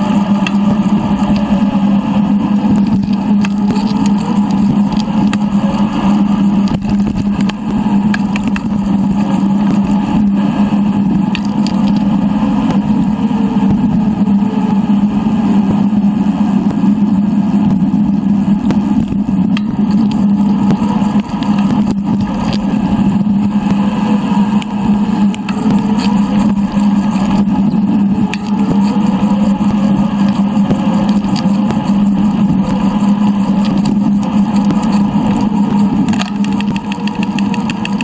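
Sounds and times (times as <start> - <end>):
wind and tyre rumble: 0.0 - 38.0.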